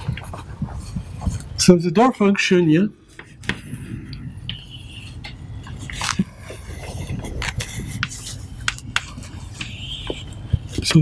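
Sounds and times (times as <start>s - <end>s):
chalk tapping and scraping on blackboard: 3.1s - 11.0s.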